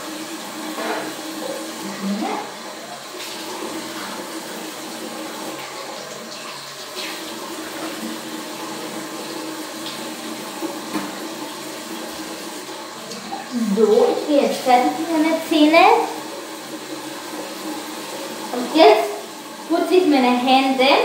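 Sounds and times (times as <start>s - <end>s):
tap running into sink: 0.6s - 1.8s, 6.4s - 12.3s.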